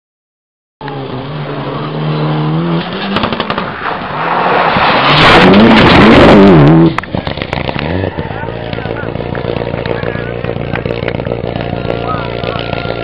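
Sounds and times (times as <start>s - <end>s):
rally car engine revving: 0.8s - 13.0s
exhaust pops and crackles: 3.0s - 13.0s.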